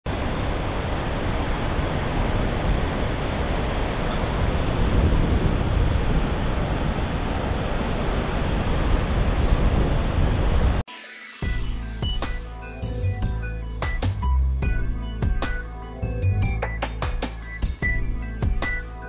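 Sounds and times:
waterfall rushing: 0.1s - 9.4s.

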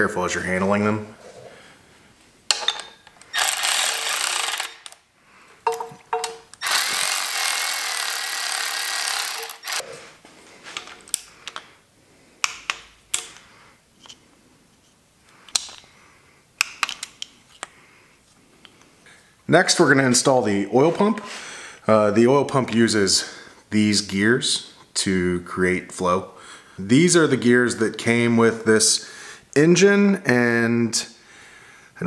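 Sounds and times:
hand tools clicking on metal: 2.5s - 5.0s, 5.6s - 9.8s
cordless electric ratchet running: 3.3s - 5.0s, 6.6s - 9.8s.

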